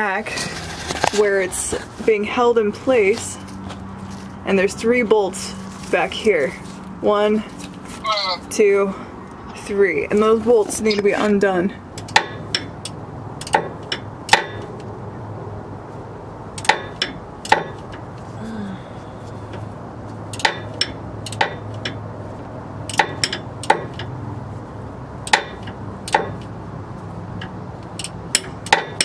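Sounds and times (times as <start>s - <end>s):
hand tools clanking on metal: 12.0s - 14.7s, 20.3s - 22.0s, 22.9s - 24.2s, 25.3s - 26.5s, 27.4s - 29.0s.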